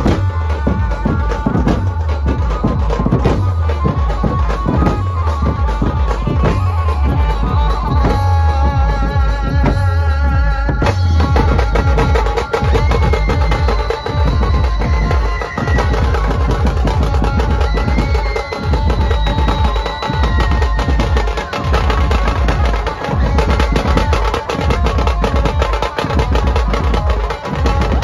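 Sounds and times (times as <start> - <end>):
heavy bass from loudspeakers: 0.0 - 19.6.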